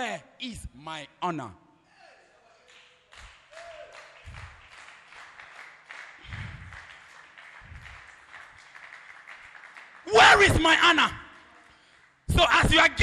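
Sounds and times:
faint scattered clapping: 2.6 - 10.1, 11.2 - 12.3.

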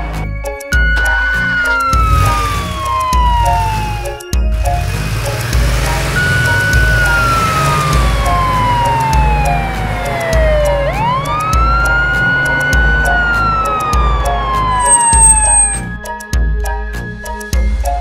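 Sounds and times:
music with bass beat: 0.0 - 18.0
police siren wailing: 0.7 - 4.3, 5.3 - 15.8.

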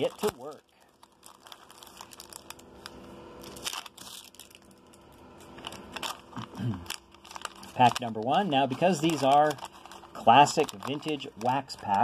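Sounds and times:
wrapper crinkling and tearing: 0.0 - 12.0.

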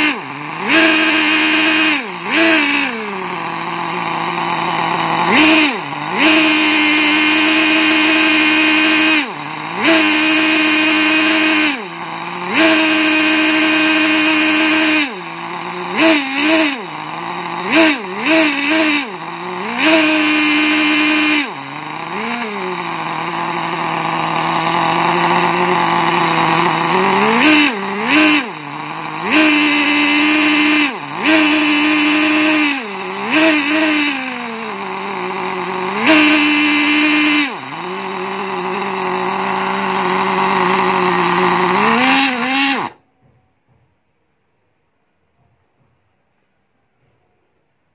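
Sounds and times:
model engine buzzing revving: 0.0 - 43.0.

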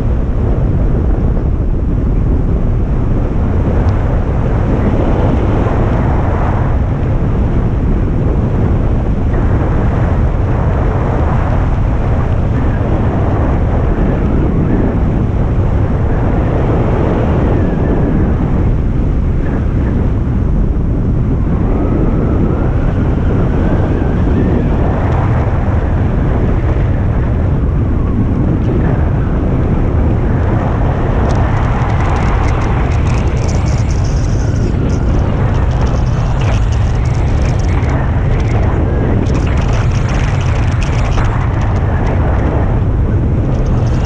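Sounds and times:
wind buffeting microphone: 0.0 - 44.0
light crackle: 29.9 - 44.0.

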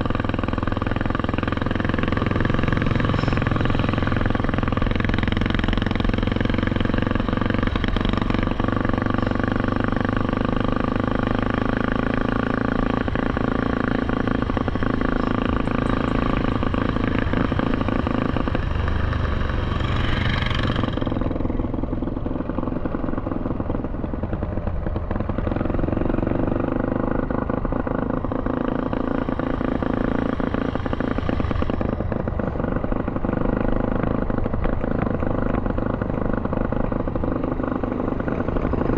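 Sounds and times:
atv engine running: 0.0 - 38.9.

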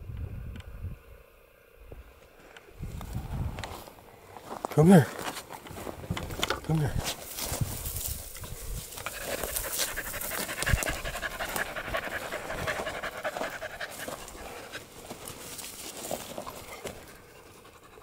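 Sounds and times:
rustles in dry brush: 2.8 - 17.3
dog panting: 9.0 - 18.0.

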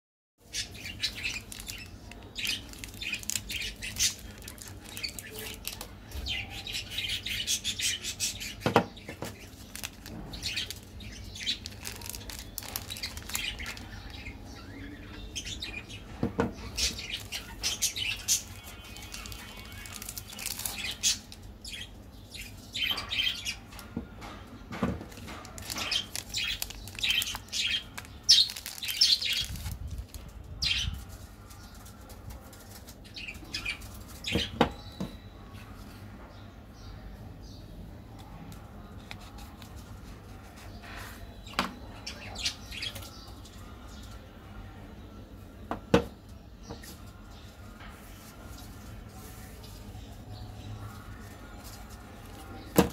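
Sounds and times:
plastic wrappers crinkling: 0.5 - 7.1, 9.1 - 14.9, 16.8 - 21.8, 25.0 - 34.5, 50.9 - 52.9.

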